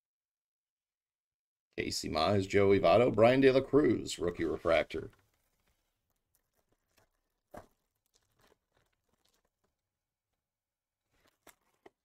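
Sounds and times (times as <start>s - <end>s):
trading cards and wrappers crackling: 3.2s - 9.9s, 11.0s - 12.0s.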